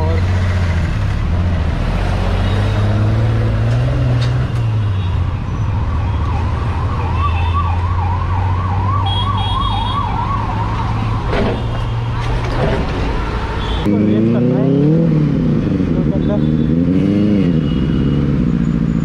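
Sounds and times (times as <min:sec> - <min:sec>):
siren wailing: 0:05.8 - 0:11.3.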